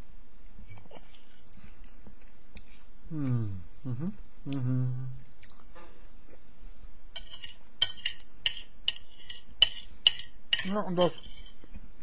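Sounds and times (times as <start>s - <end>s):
person chewing food: 0.7s - 6.5s
person humming: 3.1s - 5.3s.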